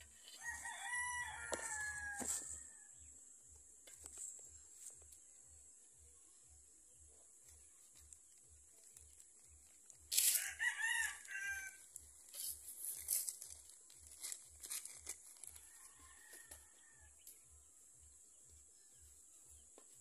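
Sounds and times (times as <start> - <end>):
rooster crowing: 0.3 - 3.0, 10.2 - 11.9, 15.5 - 17.2
plastic bag crackling: 12.2 - 15.7.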